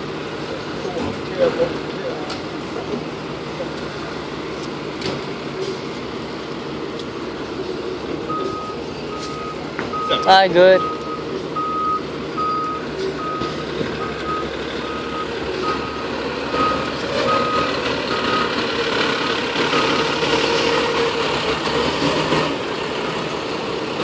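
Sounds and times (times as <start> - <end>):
diesel engine running: 0.0 - 24.0
reversing alarm beeps: 8.3 - 18.6, 19.7 - 20.1.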